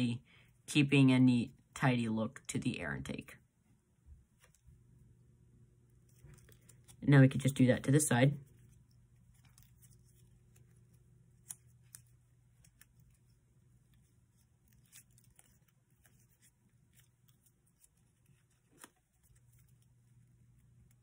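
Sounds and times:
low steady hum: 0:00.0 - 0:21.0
paper crinkling: 0:05.9 - 0:07.6, 0:08.4 - 0:21.0.

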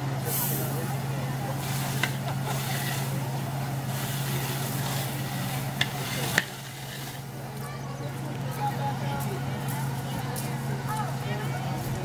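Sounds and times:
outdoor hiss: 0:00.0 - 0:07.7.

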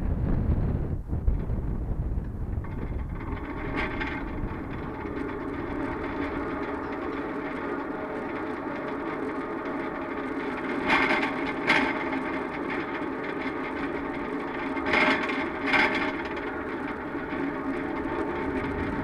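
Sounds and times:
tower crane mechanical drone: 0:00.0 - 0:19.0
crane rattles: 0:02.2 - 0:19.0.

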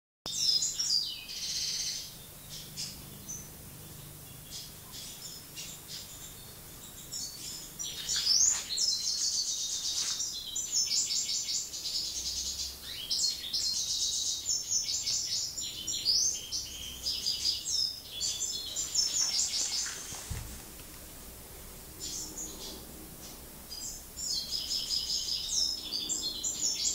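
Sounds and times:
goldfinch twittering song: 0:00.3 - 0:20.2.

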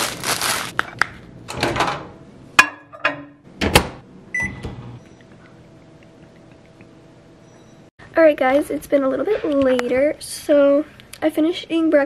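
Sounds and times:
plastic bag rustling: 0:00.0 - 0:01.0
microwave humming: 0:00.0 - 0:07.9
microwave keypad beep: 0:04.3 - 0:05.2, 0:07.4 - 0:07.9.

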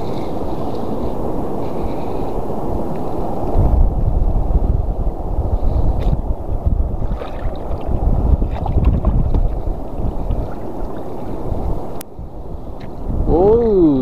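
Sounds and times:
wind buffeting microphone: 0:00.0 - 0:14.0
deep steady rumble: 0:03.2 - 0:14.0
water lapping and sloshing: 0:06.0 - 0:12.0.

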